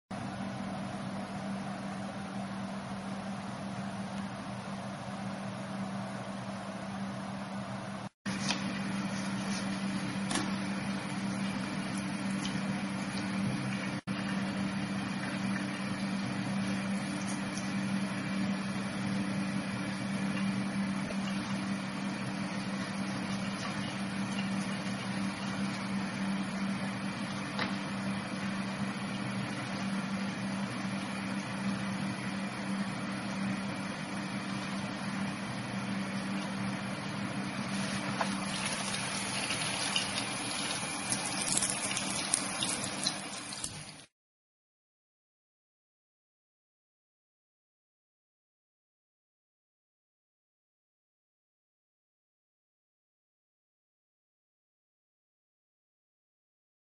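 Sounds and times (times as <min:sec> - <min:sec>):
machine hum: 0:00.1 - 0:44.1.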